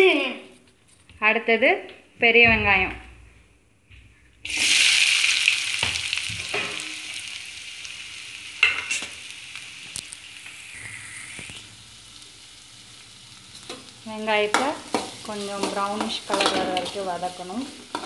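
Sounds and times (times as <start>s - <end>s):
onions sizzling in oil: 4.4s - 18.0s.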